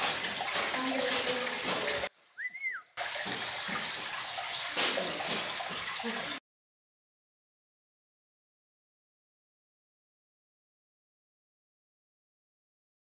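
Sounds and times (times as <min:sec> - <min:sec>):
rising and falling whistle: 0:02.4 - 0:02.9.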